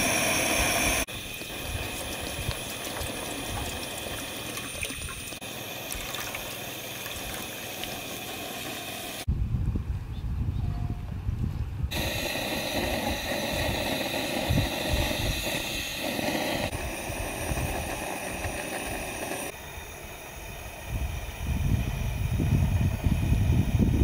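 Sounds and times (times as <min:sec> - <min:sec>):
water hissing in frying pan: 0:00.0 - 0:09.3, 0:11.9 - 0:24.0
wind rumbling on microphone: 0:09.3 - 0:19.2, 0:20.4 - 0:24.0.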